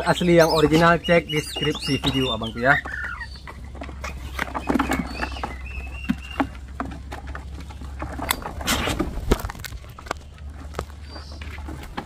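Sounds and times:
bird chirps: 0:00.0 - 0:06.7, 0:09.9 - 0:11.8.

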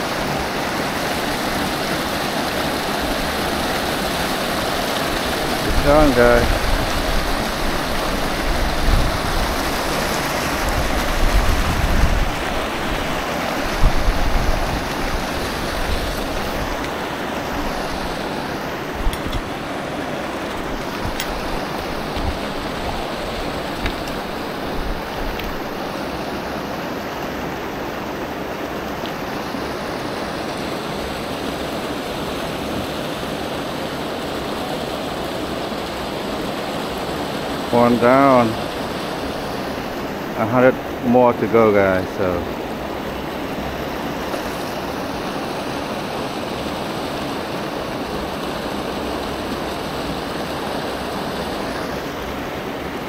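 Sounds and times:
creek water flowing: 0:00.0 - 0:53.0.

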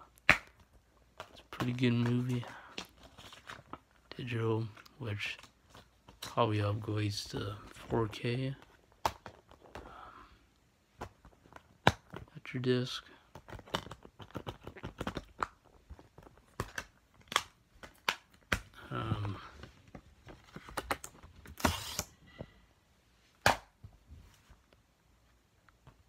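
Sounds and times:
plastic case clicks and snaps: 0:16.5 - 0:18.7.

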